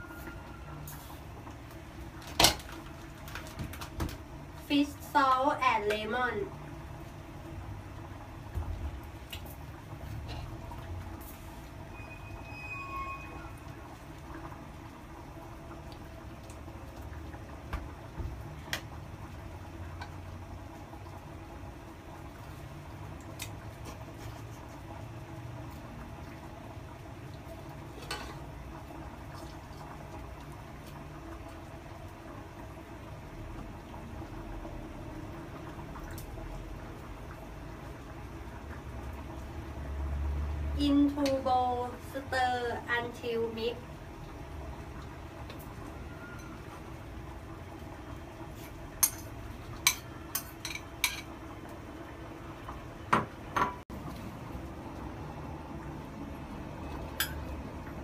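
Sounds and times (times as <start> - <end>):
juice dripping into bowl: 7.0 - 23.8, 25.1 - 40.7.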